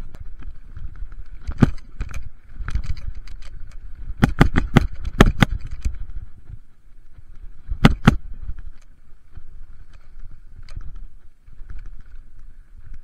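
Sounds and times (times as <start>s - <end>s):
mountain bike clattering: 0.0s - 6.4s
low rumble of tyres: 0.0s - 13.0s
wind: 0.0s - 13.0s.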